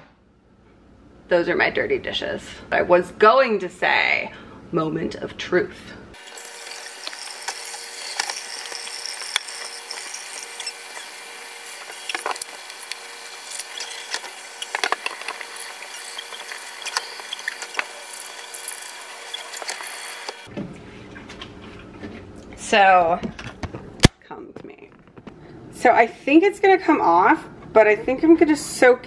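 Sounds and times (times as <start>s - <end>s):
sprayer water hissing: 6.2s - 20.5s.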